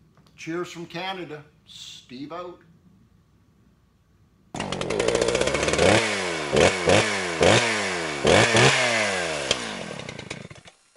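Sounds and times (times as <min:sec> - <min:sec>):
chainsaw engine revving: 0:04.6 - 0:10.9.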